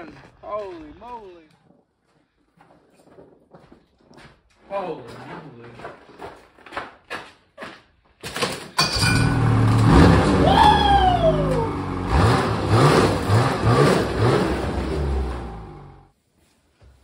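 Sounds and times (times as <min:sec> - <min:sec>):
snowmobile engine starting and revving: 0:09.0 - 0:16.1.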